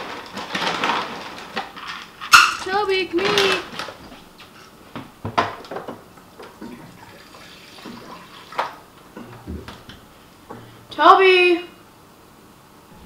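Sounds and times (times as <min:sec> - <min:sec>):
water running into bowl: 0:06.6 - 0:08.8.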